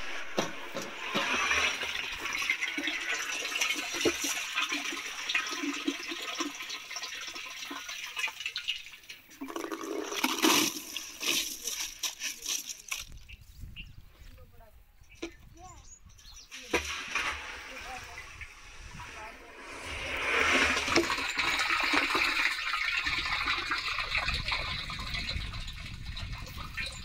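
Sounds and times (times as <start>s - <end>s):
water sloshing in a tub: 0.0s - 13.2s, 16.5s - 27.0s
wet grains pouring into a metal pot: 1.0s - 13.1s, 19.2s - 27.0s.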